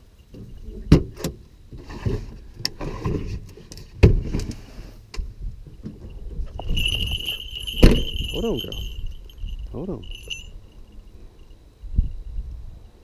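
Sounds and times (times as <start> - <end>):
rustling handling noise: 6.5 - 10.5.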